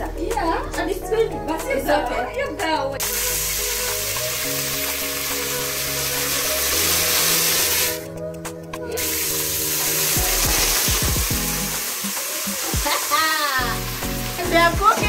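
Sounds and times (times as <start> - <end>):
water hissing in hot oil: 3.0 - 8.1, 9.0 - 15.0.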